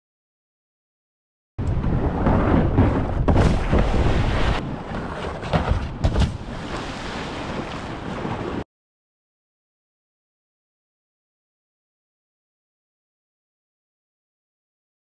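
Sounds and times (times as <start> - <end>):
kayak splash: 2.4 - 8.6
kayak knocks on boulder: 4.9 - 6.5
rushing river water: 6.2 - 8.6.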